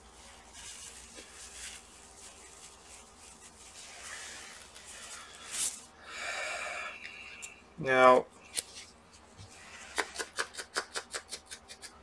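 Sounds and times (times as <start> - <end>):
sleeve and gloves rustling: 0.0 - 5.9.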